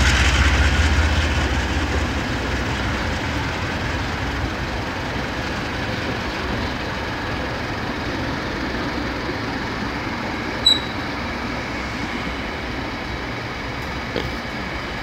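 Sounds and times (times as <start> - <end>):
freight train wheels rumbling: 0.0 - 15.0
short high squeal: 10.6 - 11.1.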